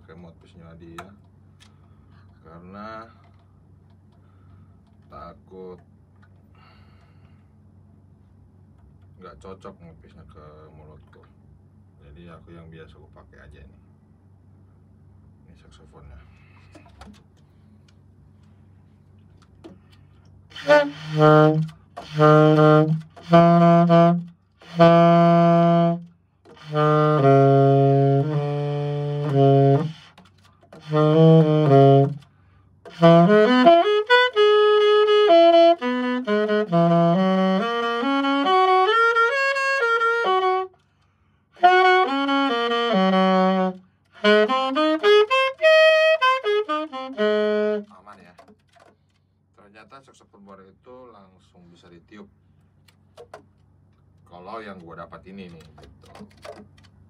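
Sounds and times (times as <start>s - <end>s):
alto saxophone playing: 20.5s - 32.3s, 32.9s - 40.8s, 41.6s - 48.1s.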